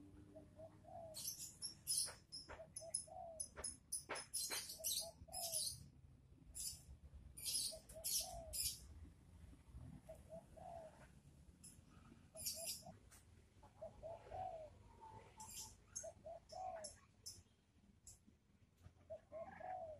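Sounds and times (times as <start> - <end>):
small birds chirping: 0.3 - 5.9, 6.5 - 9.0, 11.6 - 18.3
dove cooing: 0.4 - 1.4, 2.0 - 3.4, 4.8 - 5.7, 7.6 - 8.7, 10.0 - 11.1, 13.6 - 17.0, 19.1 - 19.9.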